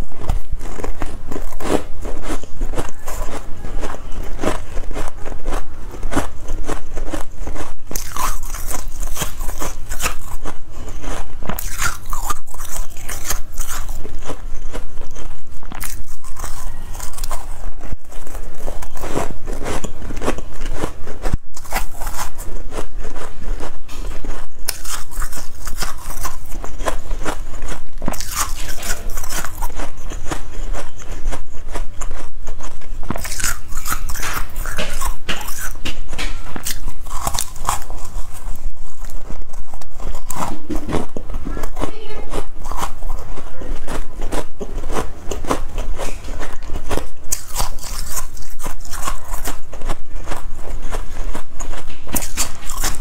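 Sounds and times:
chewing frost crunching: 0.0 - 53.0.

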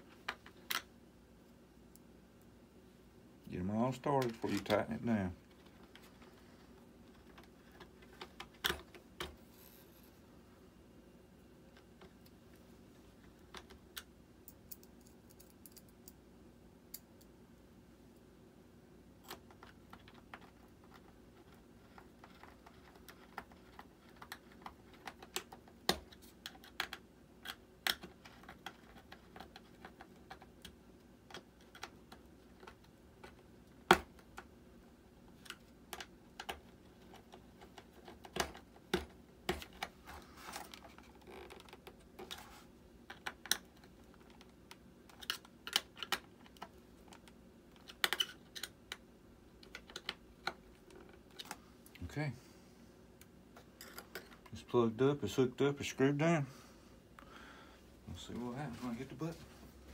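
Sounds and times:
screwdriver clicking and tapping on plastic: 35.4 - 39.9.

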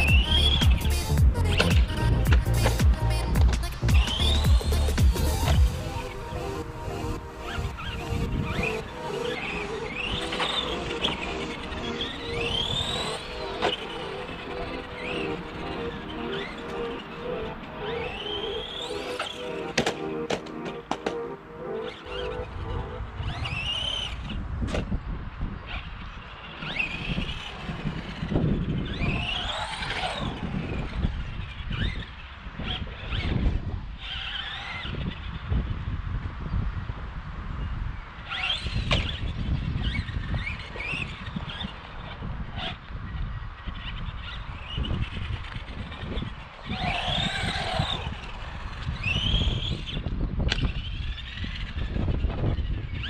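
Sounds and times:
electric motor whining: 0.0 - 24.8, 25.8 - 35.5, 43.7 - 53.0
wind rumble: 0.0 - 53.0
tyres on concrete: 18.0 - 21.2.

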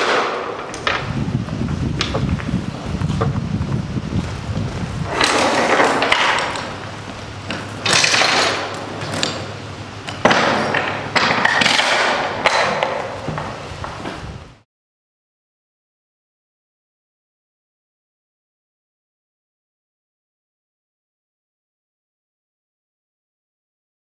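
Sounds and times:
steel chains clanking and rattling: 5.0 - 13.2.

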